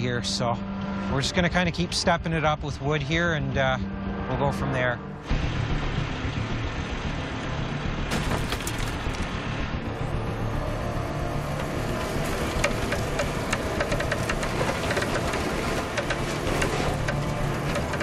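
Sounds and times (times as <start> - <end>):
heavy truck engine under load: 5.3 - 18.0
sharp cracks and crunches: 8.1 - 9.3.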